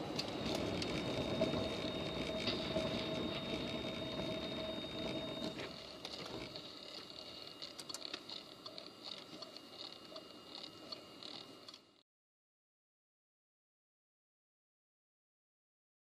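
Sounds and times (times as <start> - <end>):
car engine and road noise: 0.0 - 6.5
car cabin noise: 0.0 - 6.7.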